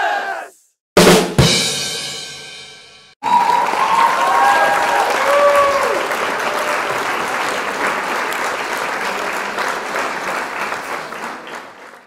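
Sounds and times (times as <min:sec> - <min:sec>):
crowd applauding: 0:03.2 - 0:12.0.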